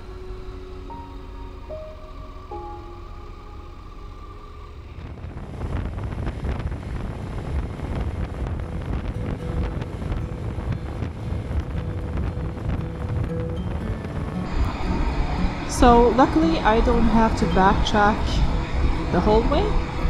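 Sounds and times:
music: 0.0s - 4.9s, 7.8s - 20.0s
wind buffeting microphone: 0.0s - 20.0s.

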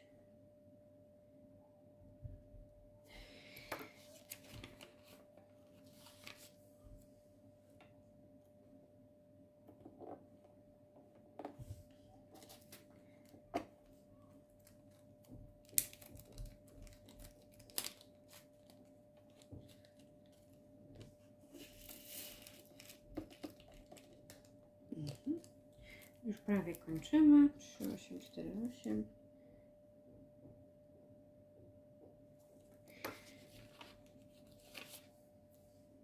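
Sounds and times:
faint steady hum: 0.0s - 36.0s
plastic bag rustle: 21.6s - 25.5s.

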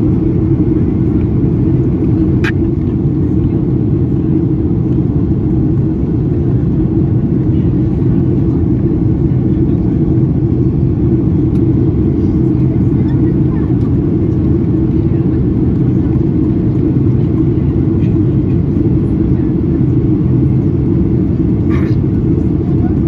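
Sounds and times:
jet engine drone: 0.0s - 23.0s.

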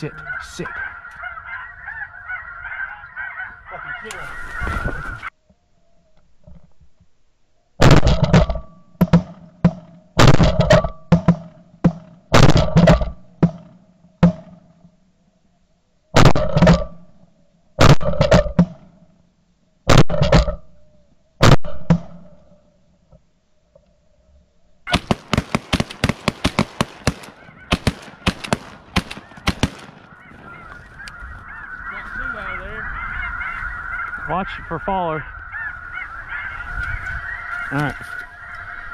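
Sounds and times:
geese calling: 0.0s - 5.4s, 24.9s - 38.9s
shotgun blasts: 10.2s - 11.4s, 24.9s - 30.1s.

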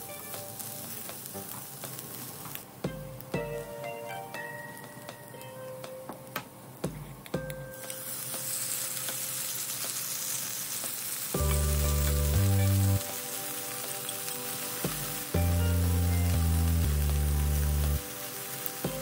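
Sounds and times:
chicken sizzling in a pan: 0.0s - 3.7s, 7.7s - 19.0s
background music low notes: 0.0s - 19.0s.

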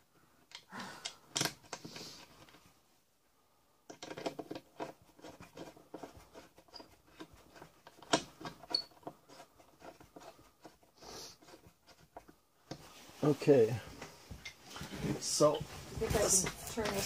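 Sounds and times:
hands clicking and scraping: 3.9s - 12.9s.

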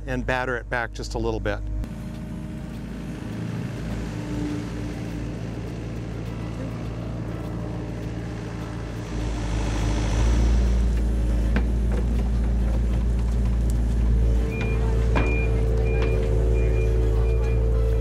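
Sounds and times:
excavator diesel engine running: 1.7s - 18.0s
travel alarm beeping: 14.1s - 18.0s.

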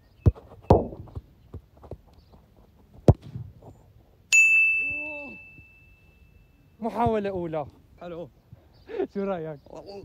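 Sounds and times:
high metallic ring: 4.3s - 6.8s.

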